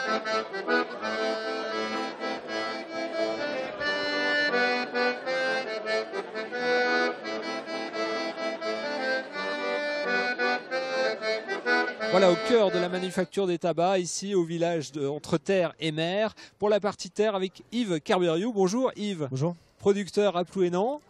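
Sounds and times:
button accordion playing: 0.0s - 13.4s.

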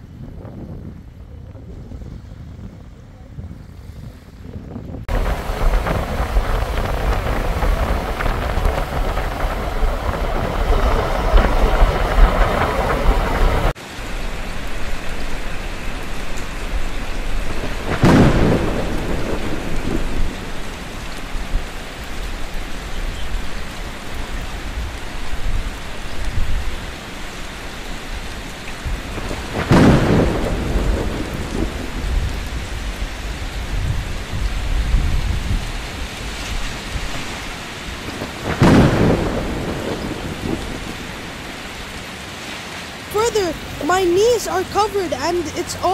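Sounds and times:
thunder crack and rumble: 0.0s - 13.8s, 16.2s - 27.0s, 27.8s - 42.1s
rushing wind: 0.0s - 45.9s
heavy rain pouring: 5.0s - 45.9s.

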